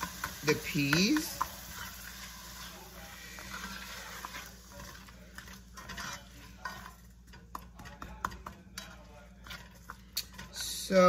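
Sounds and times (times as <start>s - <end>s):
spoon scraping a pot: 0.0s - 11.0s.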